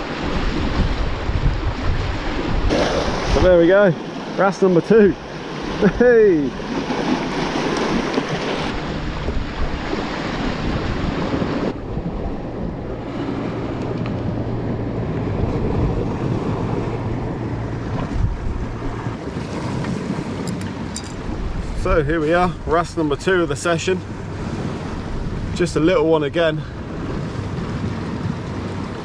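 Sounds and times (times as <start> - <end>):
waves breaking against rocks: 0.0 - 29.0
wind buffeting microphone: 0.0 - 29.0.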